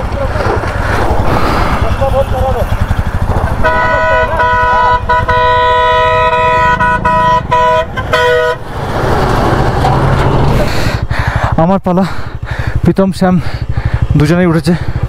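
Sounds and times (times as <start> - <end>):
truck passing with road noise: 0.0 - 11.6
low engine rumble: 0.0 - 15.0
truck horn multi-tone blast: 3.5 - 8.8.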